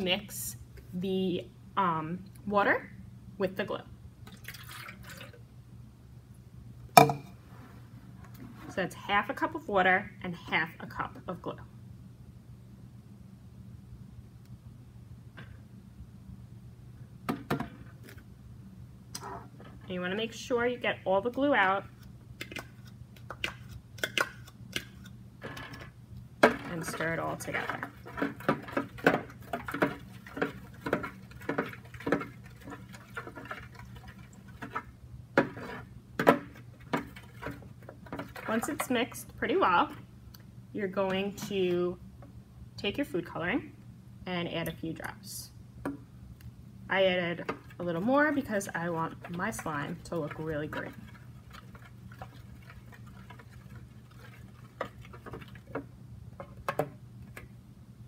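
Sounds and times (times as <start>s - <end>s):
spoon stirring liquid: 21.4s - 40.0s, 47.4s - 57.5s.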